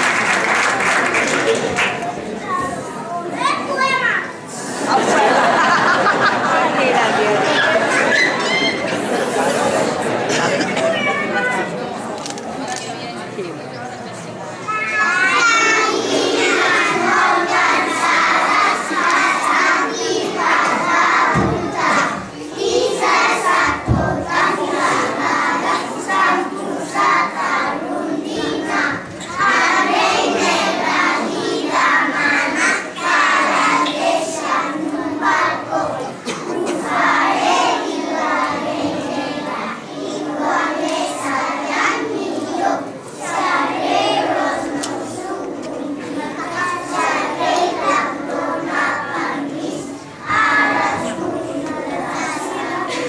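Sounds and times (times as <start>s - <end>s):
children singing in unison: 4.5s - 10.8s, 14.7s - 53.0s.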